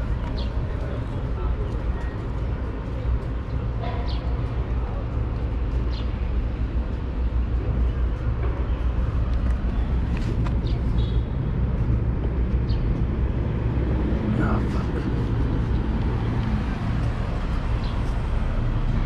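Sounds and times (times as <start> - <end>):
faint voices: 0.0 - 5.8
low rumble of traffic: 0.0 - 19.0.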